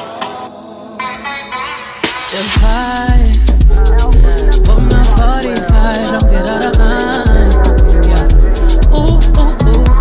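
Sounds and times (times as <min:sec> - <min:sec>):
music with bass-heavy beat: 0:02.0 - 0:10.0.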